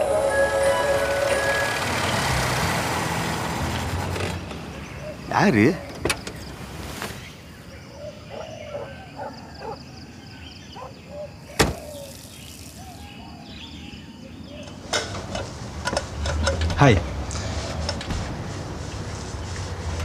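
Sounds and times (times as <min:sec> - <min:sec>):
quiet outdoor background sound: 0:00.0 - 0:20.0
car door shutting: 0:05.8 - 0:07.2, 0:11.5 - 0:12.1, 0:17.9 - 0:18.8.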